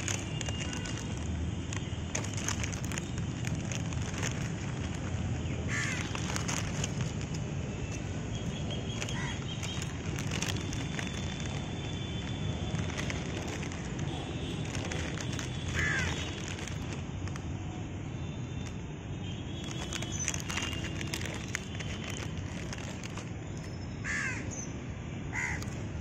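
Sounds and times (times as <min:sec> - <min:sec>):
crackling and clicks: 0:00.0 - 0:17.6, 0:19.6 - 0:23.7
crow cawing: 0:05.7 - 0:06.4, 0:09.0 - 0:09.5, 0:15.7 - 0:16.4, 0:24.0 - 0:24.5, 0:25.3 - 0:25.8.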